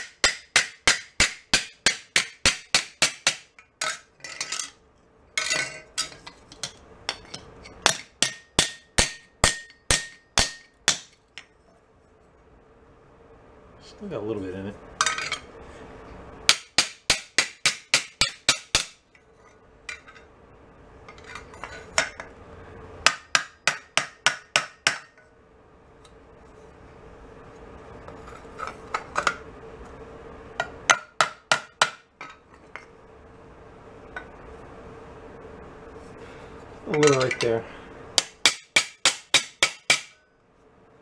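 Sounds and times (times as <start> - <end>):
hammer striking metal on anvil: 0.0 - 4.0, 7.1 - 11.2, 16.5 - 19.0, 23.0 - 25.2, 38.2 - 40.2.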